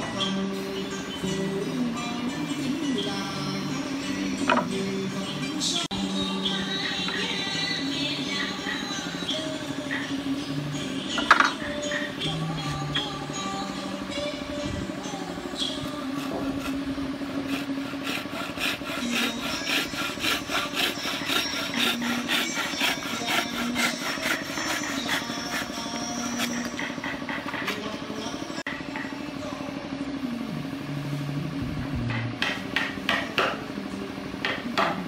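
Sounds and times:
bow saw cutting wood: 15.9 - 27.8.

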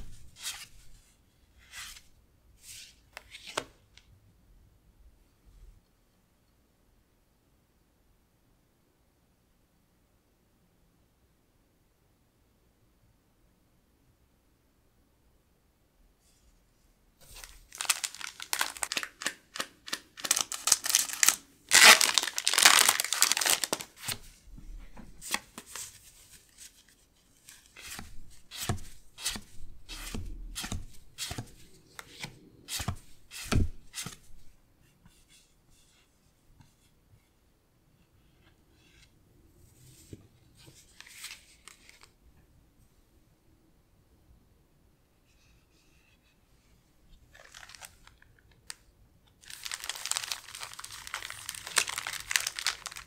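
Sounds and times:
foil wrapper crinkling and tearing: 17.4 - 24.1, 47.4 - 48.2, 49.4 - 53.0
cards clicking and sliding: 27.8 - 34.2.

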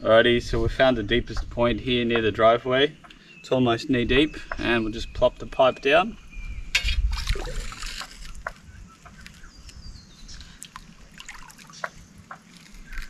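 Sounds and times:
hands splashing in water: 7.1 - 8.2, 10.6 - 13.0
floodwater splashing and sloshing: 7.1 - 8.4, 10.4 - 13.0.

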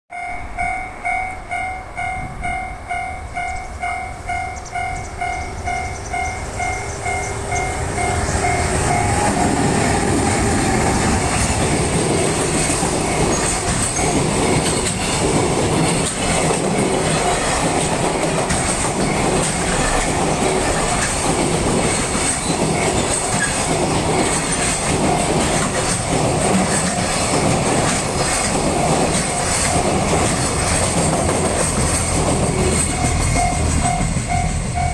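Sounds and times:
level-crossing alarm bell: 0.1 - 11.4, 12.5 - 15.2, 32.6 - 34.9
freight train passing: 0.1 - 34.9.

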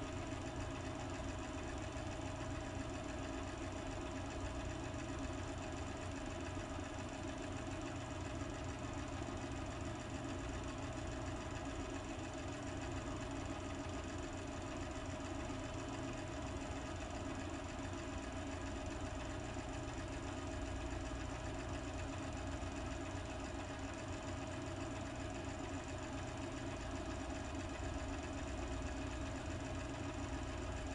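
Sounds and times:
machine hum with whine: 0.0 - 3.6.

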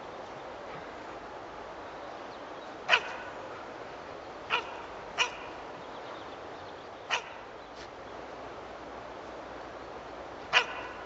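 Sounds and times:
dog barking: 2.9 - 3.3, 4.5 - 5.4, 7.1 - 7.4, 10.5 - 11.0.

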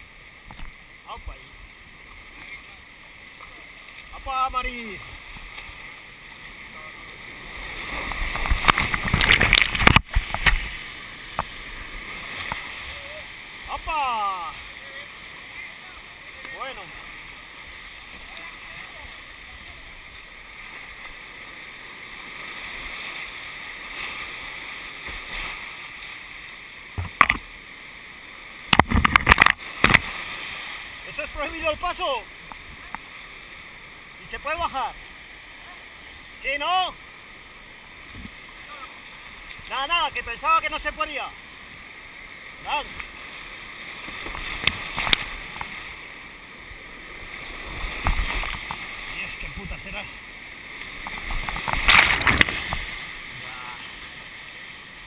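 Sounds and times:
rushing whitewater rapids: 0.0 - 55.0
water splashing against camera: 7.5 - 15.1, 26.9 - 27.6, 28.6 - 33.1, 43.9 - 46.0, 47.0 - 54.1.

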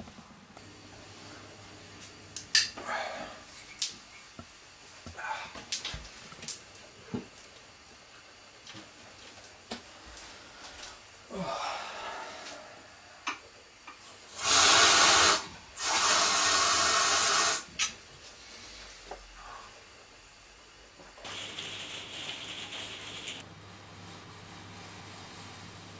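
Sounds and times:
kitchen tap running: 14.4 - 17.7.

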